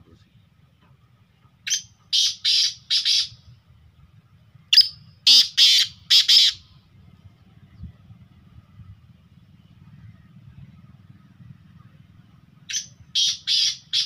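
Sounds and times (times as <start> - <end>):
francolin calling: 1.7 - 3.4, 4.7 - 6.8, 12.7 - 14.0.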